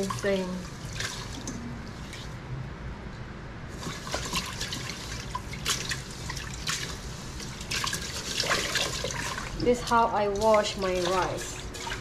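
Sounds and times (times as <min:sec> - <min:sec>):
water splashing: 0:00.0 - 0:02.3, 0:03.8 - 0:12.0
hands rubbing rice in water: 0:03.8 - 0:12.0.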